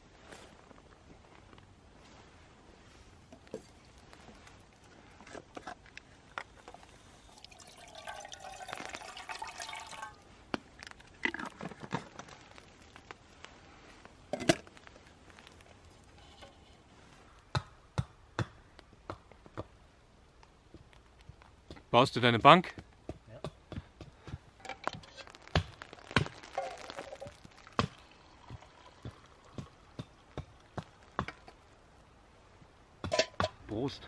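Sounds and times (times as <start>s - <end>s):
water pouring into metal pot: 6.7s - 10.3s, 24.6s - 31.4s.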